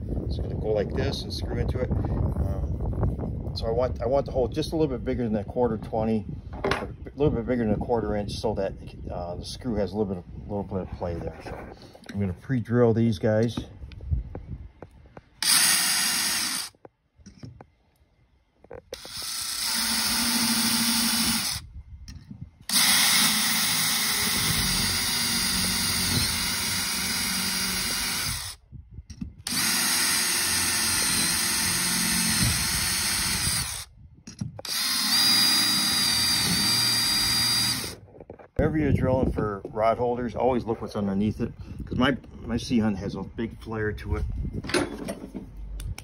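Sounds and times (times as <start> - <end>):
cordless drill whining: 15.4 - 16.8, 18.9 - 21.7, 22.6 - 28.6, 29.4 - 33.9, 34.5 - 38.0.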